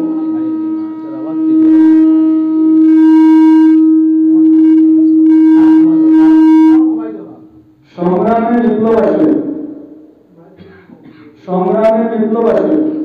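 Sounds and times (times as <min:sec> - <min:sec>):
microphone feedback howl: 0:00.0 - 0:07.2.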